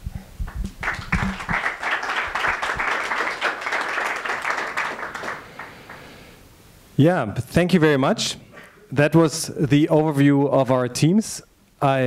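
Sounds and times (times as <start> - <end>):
audience applauding: 0.5 - 6.2.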